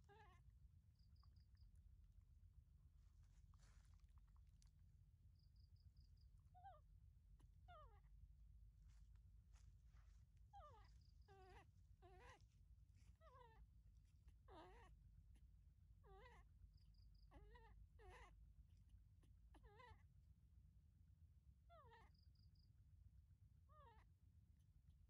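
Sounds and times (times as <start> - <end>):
baby monkey high cries: 0.0 - 0.4, 10.5 - 13.7, 14.4 - 15.0, 16.0 - 16.5, 17.2 - 18.4, 19.5 - 20.0, 21.7 - 22.1, 23.7 - 24.1.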